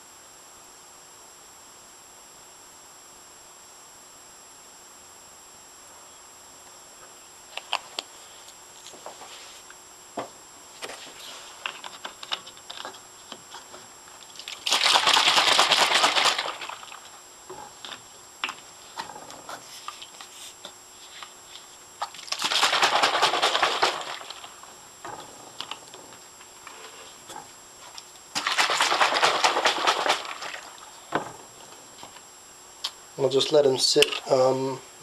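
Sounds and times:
plastic bottles crackling and rattling: 10.9s - 19.4s, 22.0s - 31.4s.

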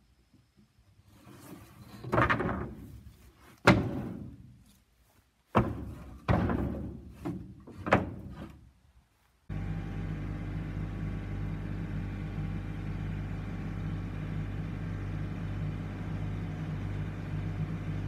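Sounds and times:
wooden boards dropped on deck: 1.9s - 3.0s, 3.6s - 4.4s, 5.5s - 8.6s
tractor engine running: 9.5s - 18.0s.

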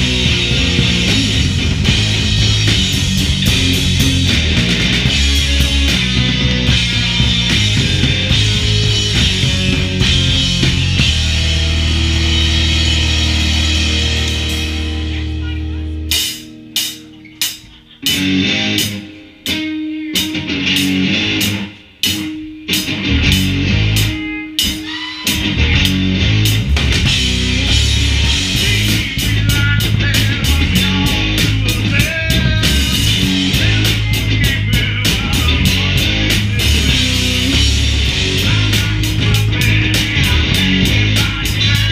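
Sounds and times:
drum hits: 0.0s - 15.3s
held guitar notes: 0.0s - 41.9s
live rock band playing: 0.0s - 41.9s.

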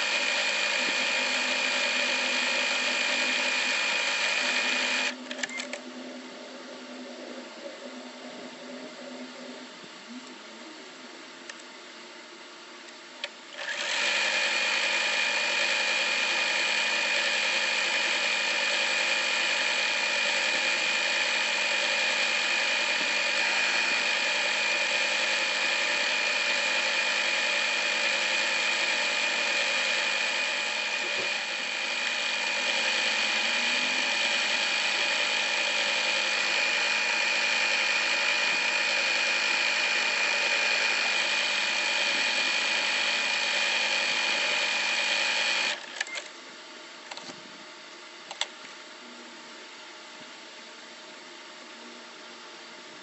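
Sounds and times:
sewing machine running: 0.0s - 5.6s, 13.5s - 46.1s.

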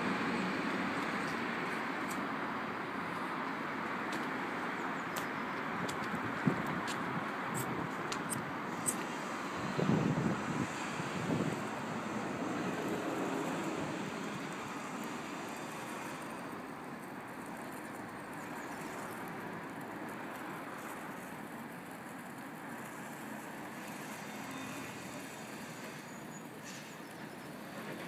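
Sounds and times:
road traffic noise: 0.0s - 28.0s.

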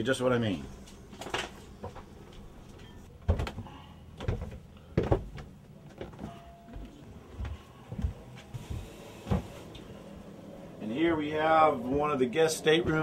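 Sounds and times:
footsteps on wooden stairs: 3.2s - 9.7s, 10.9s - 13.0s.

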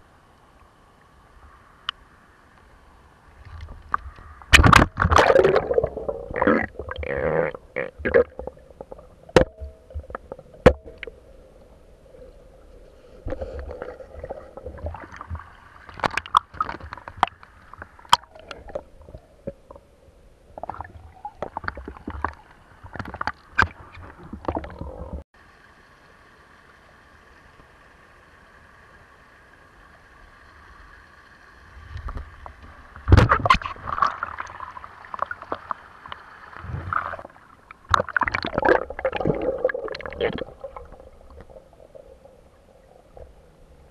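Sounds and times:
faint steady hum: 0.0s - 43.9s
gurgling water: 3.3s - 25.2s, 31.0s - 43.9s
underwater rumbling: 3.4s - 25.2s, 31.7s - 43.9s
underwater clicks and knocks: 3.5s - 5.8s, 8.0s - 11.2s, 13.3s - 19.8s, 20.6s - 25.2s, 32.0s - 34.1s.

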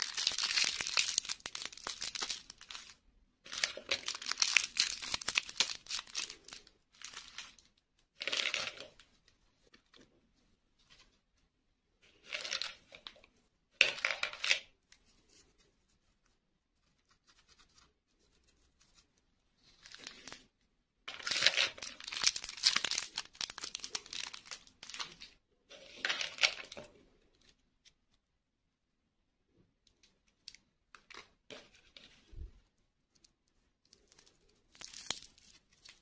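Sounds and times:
plastic packaging crinkling and tearing: 0.0s - 7.7s, 21.2s - 25.3s, 33.9s - 36.0s.

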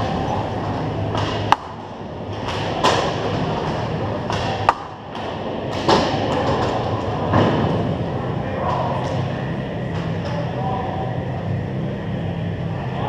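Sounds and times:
stick hitting puck: 1.1s - 1.8s, 2.4s - 6.8s.

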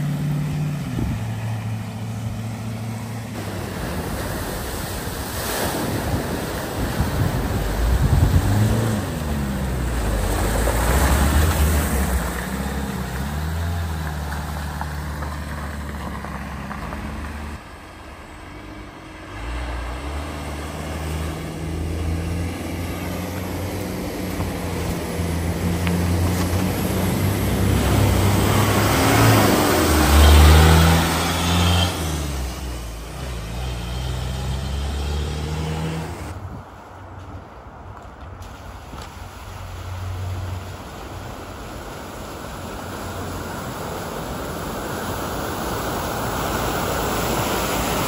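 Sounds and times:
water splashing: 0.0s - 36.4s, 38.3s - 48.0s
pickup engine: 0.0s - 48.0s
water rushing around vehicle: 0.0s - 48.0s.

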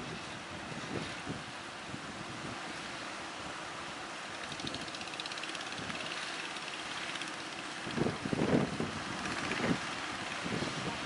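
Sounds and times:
wind buffeting microphone: 0.0s - 2.6s, 7.6s - 11.0s
faint boat engine: 0.0s - 11.0s.

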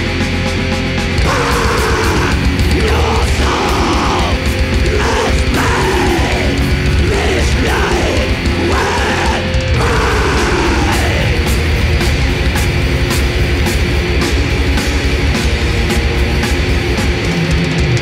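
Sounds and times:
distorted guitars: 0.0s - 18.0s
fast drums: 0.0s - 18.0s
pounding bass: 0.0s - 18.0s
harsh growled vocals: 1.2s - 11.6s.

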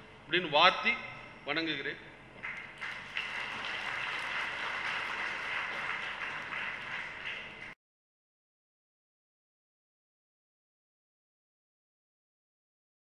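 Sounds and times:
audience applauding: 2.4s - 7.8s.

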